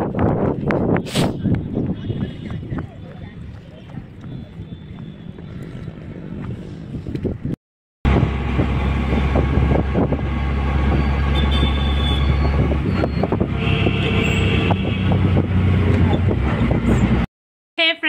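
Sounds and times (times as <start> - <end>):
road noise: 0.0 - 17.3
rickshaw engine running: 8.1 - 17.3.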